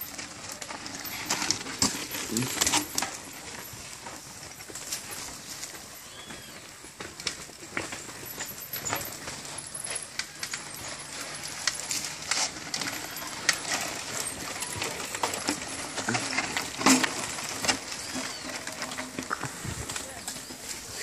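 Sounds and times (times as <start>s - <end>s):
bike tyres on dirt and stones: 0.0s - 21.0s
metallic clinks from bikes: 0.0s - 21.0s.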